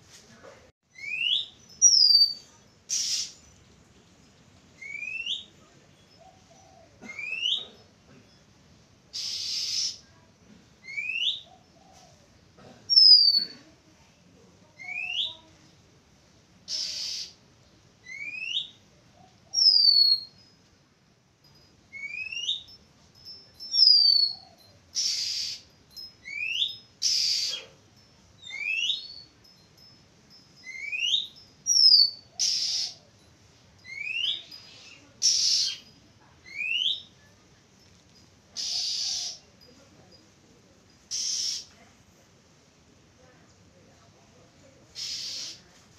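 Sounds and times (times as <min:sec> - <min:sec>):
bird whistling calls: 0:00.9 - 0:03.4, 0:04.8 - 0:05.5, 0:09.2 - 0:10.0, 0:10.8 - 0:11.5, 0:12.9 - 0:13.4, 0:16.7 - 0:17.4, 0:18.0 - 0:18.8, 0:19.5 - 0:20.4, 0:21.9 - 0:22.7, 0:23.7 - 0:24.4, 0:25.0 - 0:27.7, 0:28.4 - 0:29.3, 0:30.6 - 0:33.0, 0:33.8 - 0:35.8, 0:36.5 - 0:37.1, 0:38.6 - 0:39.4, 0:41.1 - 0:41.7, 0:45.0 - 0:45.6
bird harsh rasping notes: 0:01.0 - 0:03.5, 0:09.1 - 0:10.0, 0:16.7 - 0:17.4, 0:23.7 - 0:27.8, 0:30.6 - 0:33.1, 0:33.8 - 0:35.9, 0:38.6 - 0:39.5, 0:41.0 - 0:41.7, 0:44.9 - 0:45.7.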